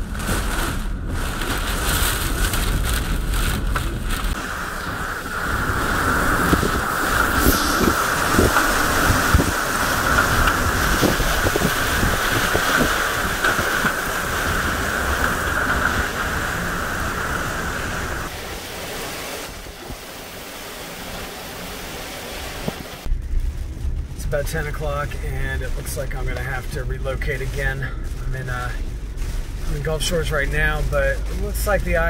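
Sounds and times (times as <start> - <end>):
high howl of wind: 0.0 - 24.2
strong wind: 0.0 - 30.2
driving rain: 0.0 - 32.0
gusts buffeting microphone: 0.0 - 32.0.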